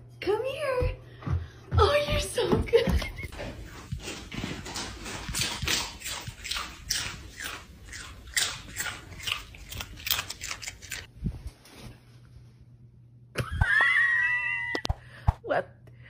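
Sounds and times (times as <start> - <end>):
dog crunching snacks: 3.4 - 11.1.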